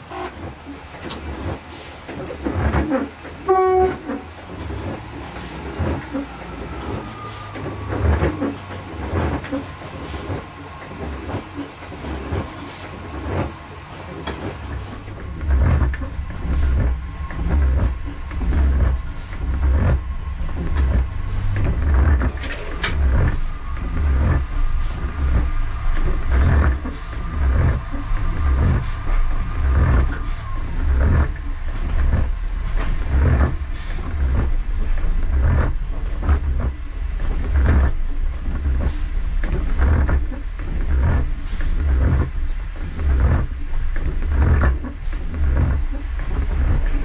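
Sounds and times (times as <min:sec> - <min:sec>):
diesel railcar engine rumbling: 0:00.0 - 0:47.0.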